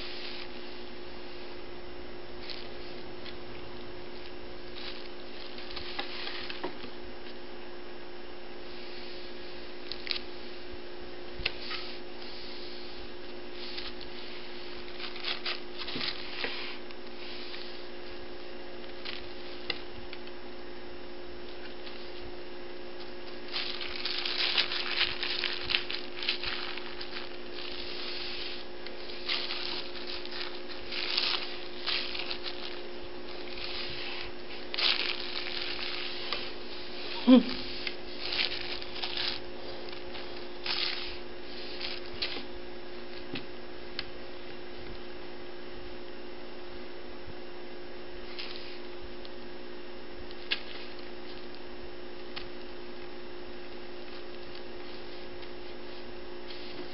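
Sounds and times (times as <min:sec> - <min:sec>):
low electrical hum: 0:00.0 - 0:56.9
kitten claws scratching paper: 0:23.4 - 0:36.6.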